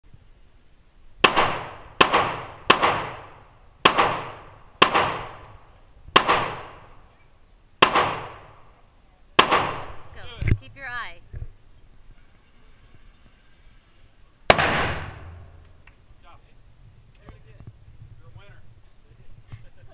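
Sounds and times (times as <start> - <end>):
rifle shots echoing indoors: 1.2 - 5.4, 6.2 - 6.8, 7.8 - 8.6, 14.5 - 15.6.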